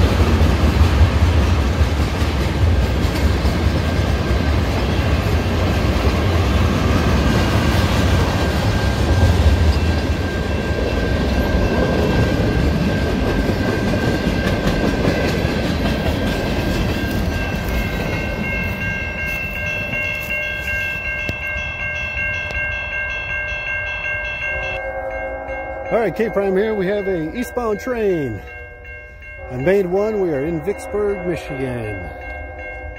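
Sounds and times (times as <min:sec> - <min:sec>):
wheels clicking over rail joints: 0:00.0 - 0:22.7
crossing warning bell ringing: 0:00.0 - 0:32.9
freight train rumbling past: 0:00.0 - 0:32.9.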